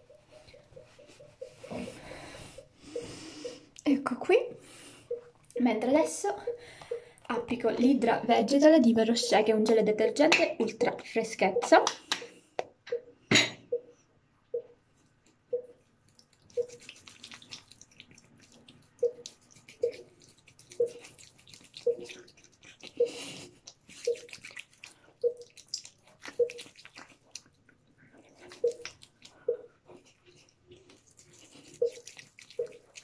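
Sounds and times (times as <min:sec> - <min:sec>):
wet squishing of face cleanser: 0:15.7 - 0:33.0.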